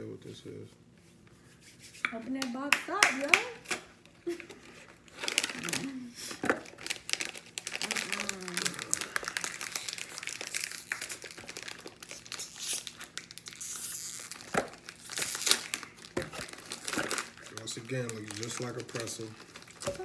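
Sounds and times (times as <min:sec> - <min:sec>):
snack wrapper crinkling: 0:04.9 - 0:20.0.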